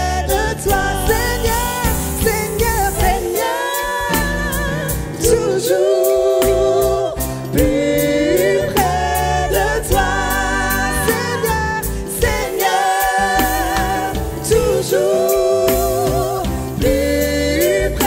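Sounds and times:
bass line: 0.0s - 18.0s
keyboard: 0.0s - 18.0s
women singing: 0.0s - 18.0s
steady beat: 0.7s - 6.8s.

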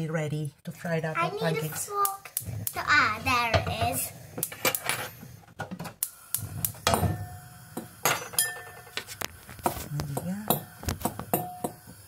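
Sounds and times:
cutlery and glass dishes clinking: 8.0s - 9.1s.

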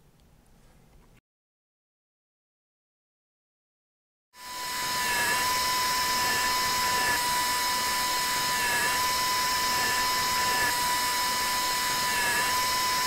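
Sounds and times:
dental handpiece high whine: 4.4s - 13.0s.

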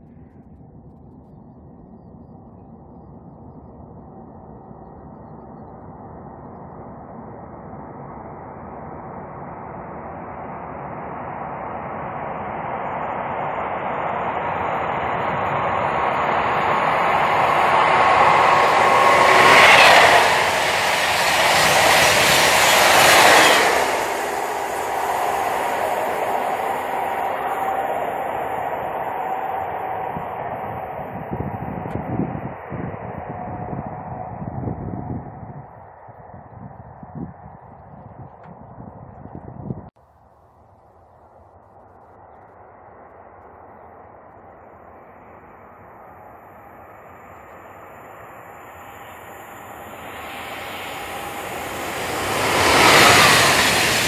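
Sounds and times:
high-speed train passing: 8.6s - 35.7s, 44.5s - 54.0s.

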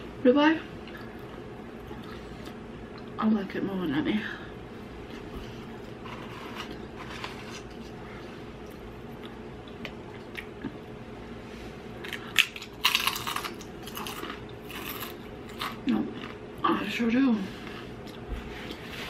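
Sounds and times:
person chewing: 0.8s - 3.2s, 8.6s - 10.9s, 12.0s - 16.4s, 17.7s - 18.9s.

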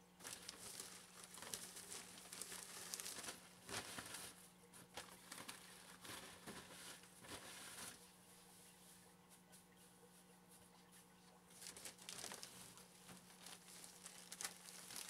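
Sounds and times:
wood shavings pouring: 0.2s - 4.4s, 11.6s - 15.0s
plastic bag crinkling: 0.2s - 8.0s, 11.5s - 15.0s.

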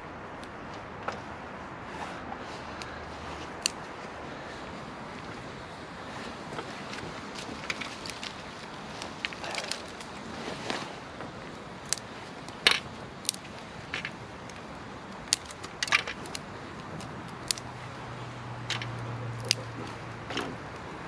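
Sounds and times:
dry twigs snapping: 2.7s - 4.2s, 6.3s - 21.0s.

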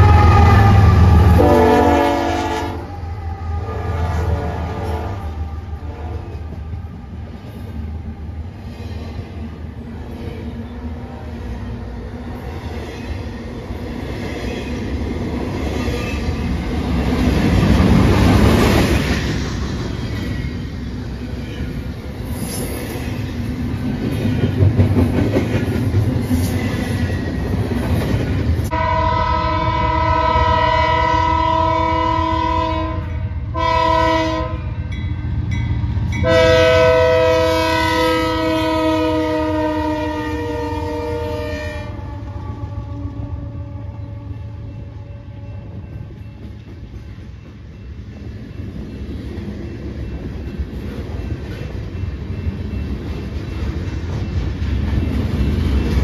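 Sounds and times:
locomotive air horn blasts: 0.0s - 6.3s, 28.7s - 34.7s, 36.2s - 45.7s
deep train rumble: 0.0s - 56.0s
freight train wheels clacking on rails: 12.4s - 28.7s, 45.5s - 56.0s.

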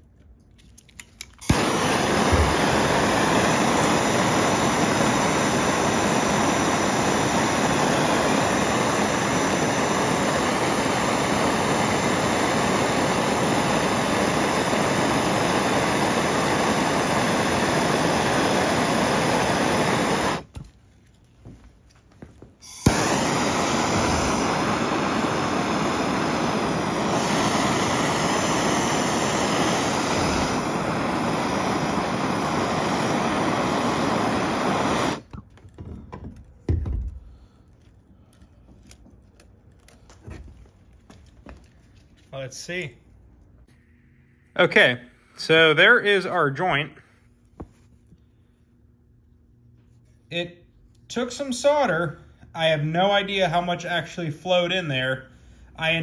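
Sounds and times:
gas torch flame hissing: 1.4s - 20.6s, 22.6s - 35.3s.

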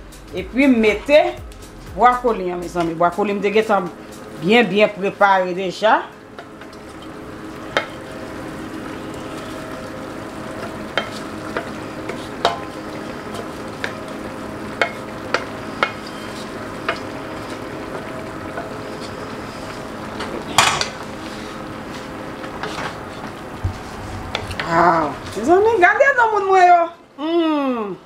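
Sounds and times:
vegetables sizzling in oil: 0.5s - 26.9s
metal skillet clattering: 6.4s - 8.0s, 10.6s - 14.0s, 20.5s - 21.0s
spatula tapping a pan: 7.7s - 8.0s, 10.6s - 14.1s, 14.8s - 18.8s
spatula scraping a skillet: 10.6s - 13.5s, 14.8s - 19.9s.

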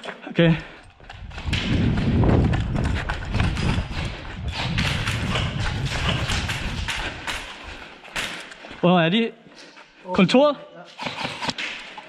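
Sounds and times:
footsteps running on concrete: 0.5s - 8.8s
low rumble: 0.8s - 8.1s
gear rattling: 0.8s - 8.6s.

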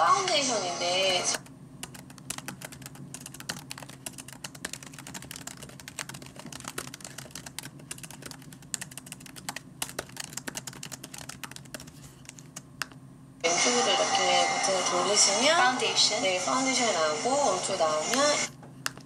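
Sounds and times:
faint low hum: 0.0s - 19.0s
fast typing on laptop keyboard: 1.4s - 13.0s.

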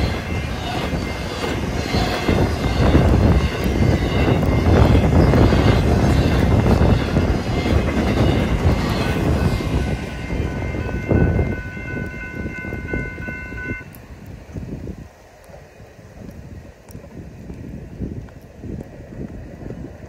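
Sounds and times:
crossing bells ringing: 0.0s - 13.9s
freight train rumbling past: 0.0s - 20.0s.

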